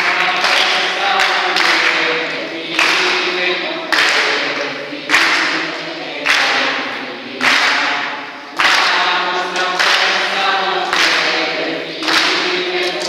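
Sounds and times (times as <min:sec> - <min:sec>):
group singing together: 0:00.0 - 0:13.0
sharp hand claps: 0:00.0 - 0:13.0.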